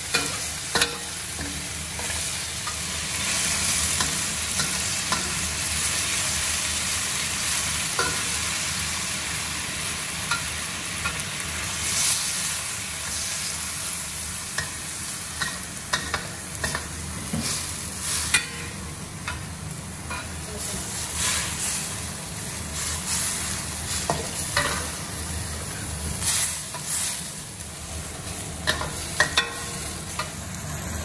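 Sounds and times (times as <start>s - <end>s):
food sizzling in wok: 0.0s - 31.0s.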